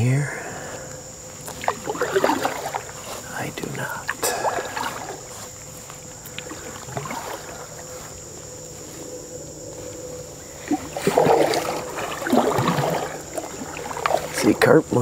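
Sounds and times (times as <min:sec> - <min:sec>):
canoe paddle strokes splashing: 0:01.4 - 0:08.3, 0:10.5 - 0:14.8.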